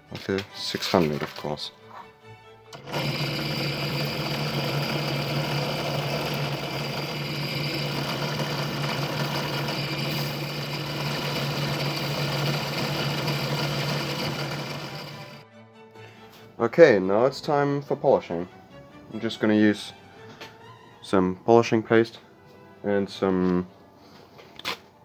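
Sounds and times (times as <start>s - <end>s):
drill press motor running: 2.7s - 15.4s.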